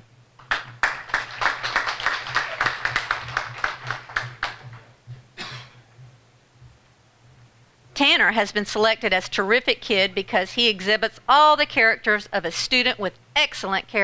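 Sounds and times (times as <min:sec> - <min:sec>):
audience applauding: 0:00.4 - 0:04.8.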